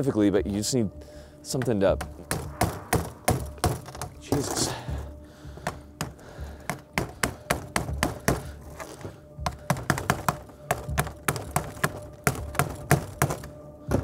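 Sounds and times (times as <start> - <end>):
hammer knocking on metal rifle: 1.6 - 4.2, 5.6 - 8.5, 9.4 - 14.0.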